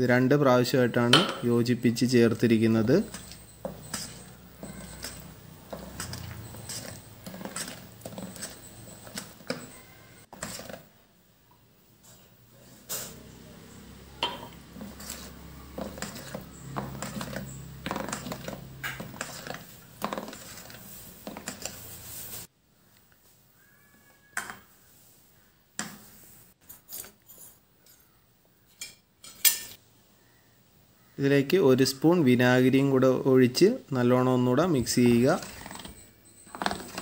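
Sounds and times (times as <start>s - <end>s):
spatula scraping steel bowl: 1.9s - 10.9s, 14.2s - 22.5s, 34.7s - 37.0s.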